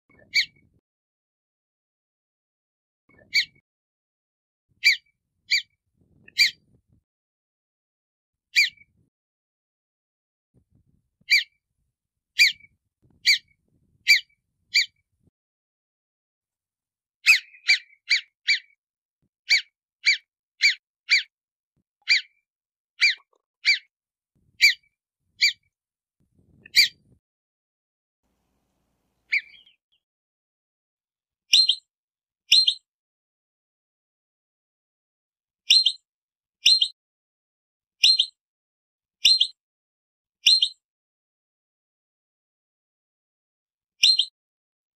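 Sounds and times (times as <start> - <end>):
ground squirrel alarm chirps: 0.2 - 0.6, 3.2 - 3.6, 4.8 - 5.7, 6.3 - 6.6, 8.6 - 8.9, 11.3 - 11.5, 12.4 - 15.0, 17.2 - 18.7, 22.1 - 22.3, 23.0 - 23.8, 24.6 - 24.8, 26.7 - 27.1, 29.3 - 29.8, 32.5 - 32.8, 39.2 - 39.6, 44.0 - 44.3.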